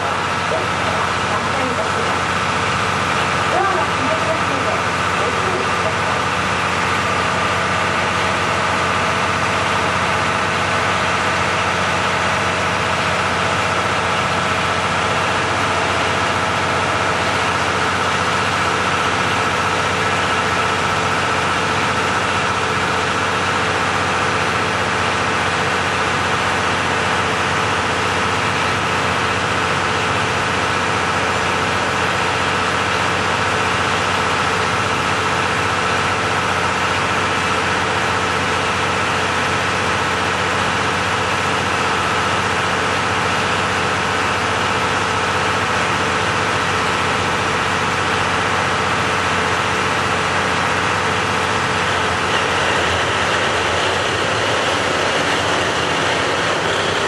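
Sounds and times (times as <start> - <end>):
diesel railcar engines idling: 0.0 - 57.0.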